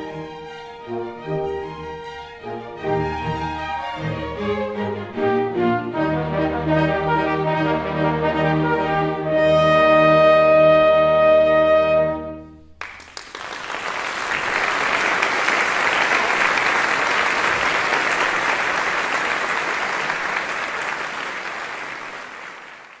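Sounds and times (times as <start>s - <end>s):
audience applauding: 12.8s - 23.0s.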